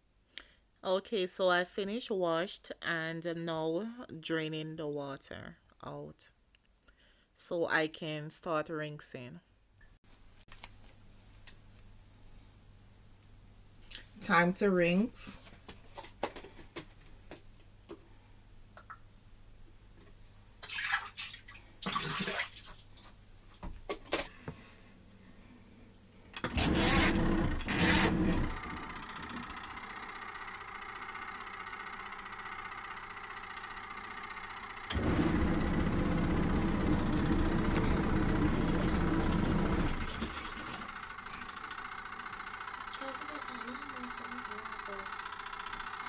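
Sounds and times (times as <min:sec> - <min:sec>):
water pouring into tub: 0:20.6 - 0:23.0, 0:39.8 - 0:40.9
washing machine motor running: 0:26.4 - 0:46.0.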